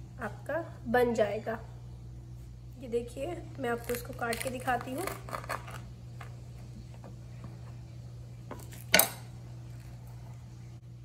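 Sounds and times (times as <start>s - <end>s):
low steady hum: 0.0s - 11.0s
knife cutting crispy burger: 3.8s - 5.9s.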